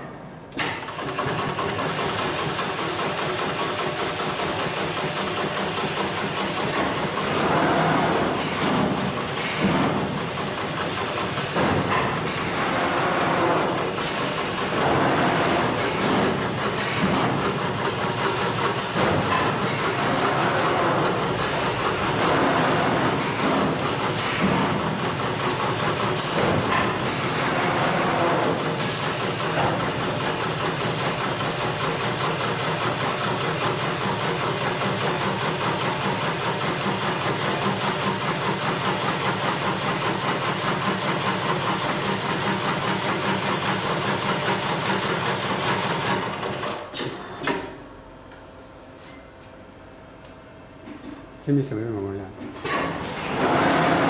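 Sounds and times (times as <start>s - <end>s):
sewing machine stitching: 0.6s - 32.1s, 53.1s - 54.0s.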